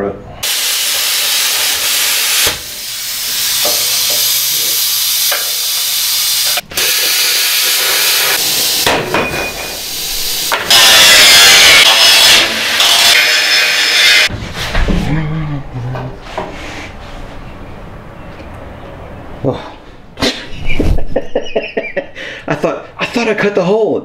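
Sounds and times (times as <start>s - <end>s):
rushing hiss of air: 0.4s - 8.9s.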